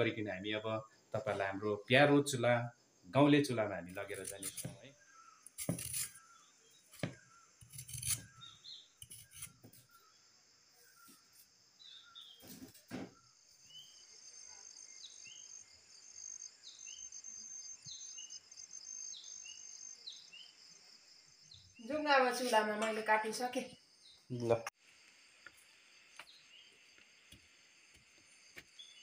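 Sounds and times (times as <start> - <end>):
small birds chirping: 3.0 - 24.6, 25.4 - 29.0
peeler scraping potato: 4.0 - 4.8, 5.4 - 6.3, 7.0 - 9.8.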